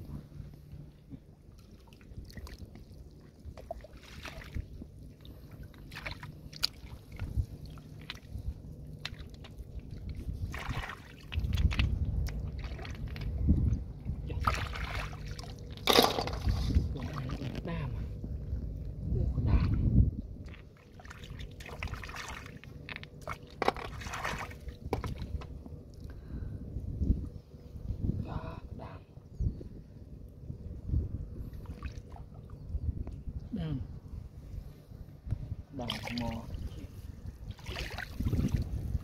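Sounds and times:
hands splashing in muddy water: 0:37.5 - 0:38.8.

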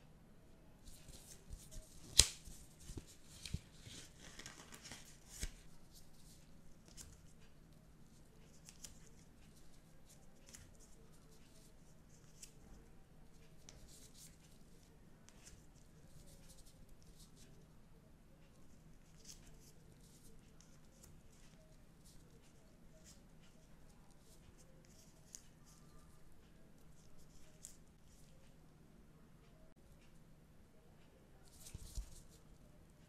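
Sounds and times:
paper rustling: 0:00.8 - 0:07.4, 0:31.5 - 0:32.4.

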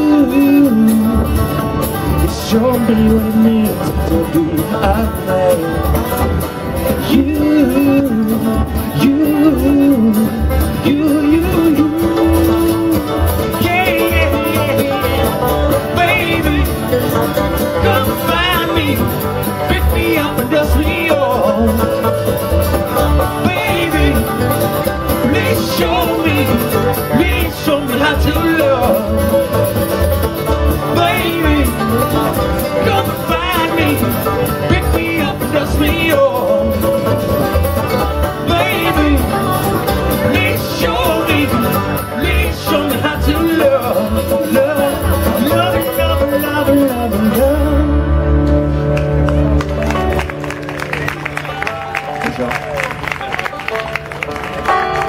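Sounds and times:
plucked upright bass: 0:00.0 - 0:51.7
acoustic guitar: 0:00.0 - 0:55.0
banjo rolls: 0:00.0 - 0:55.0.

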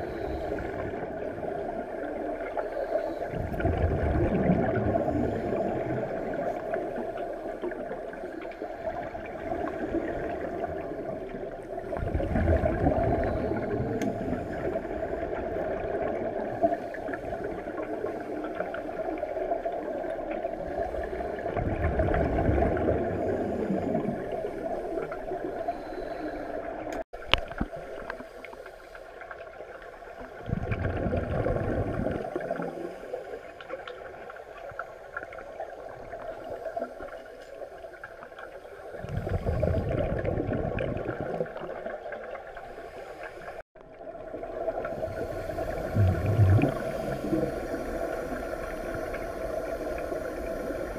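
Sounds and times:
gurgling exhaled bubbles: 0:00.0 - 0:25.8, 0:30.2 - 0:37.3, 0:38.9 - 0:50.9
underwater regulator breathing hiss: 0:42.6 - 0:43.6, 0:44.8 - 0:50.9.

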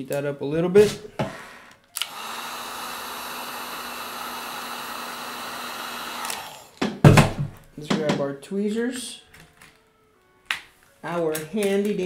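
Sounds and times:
hot-air tool blowing hiss: 0:02.0 - 0:06.8.

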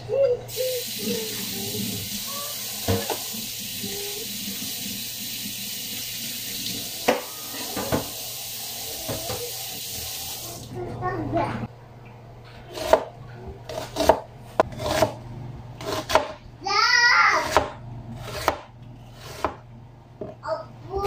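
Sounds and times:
dishes clattering in sink: 0:02.8 - 0:03.3, 0:06.7 - 0:08.3, 0:09.0 - 0:09.5
tap running into sink: 0:06.6 - 0:08.2.

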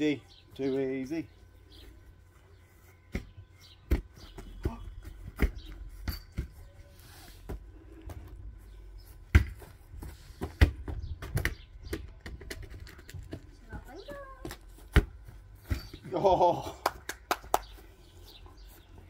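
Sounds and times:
football kicked thudding on grass: 0:03.1 - 0:06.6, 0:09.3 - 0:11.6, 0:14.4 - 0:16.0.

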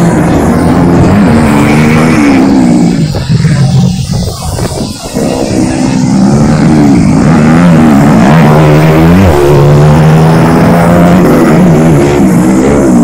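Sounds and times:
dirt bike engines revving: 0:00.0 - 0:13.0.

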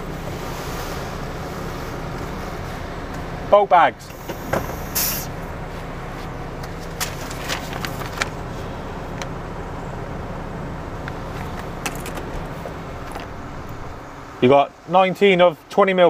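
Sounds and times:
diesel engine idling: 0:00.0 - 0:16.0
paper rustling: 0:06.7 - 0:08.6.

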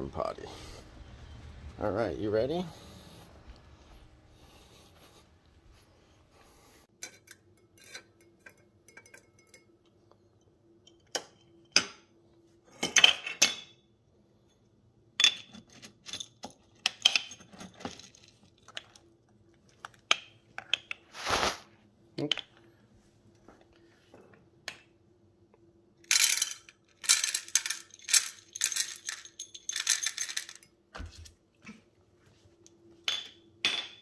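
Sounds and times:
kibble clinking against glass jar: 0:26.1 - 0:30.7.

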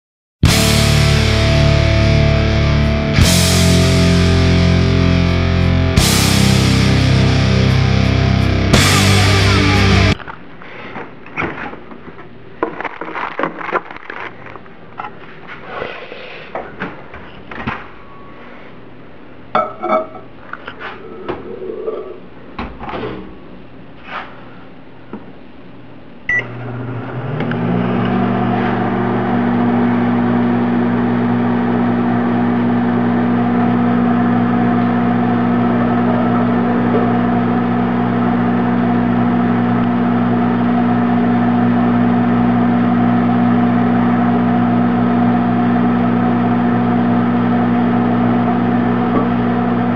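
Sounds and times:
microwave oven humming: 0:26.2 - 0:49.9
microwave oven beep: 0:26.3 - 0:26.8.

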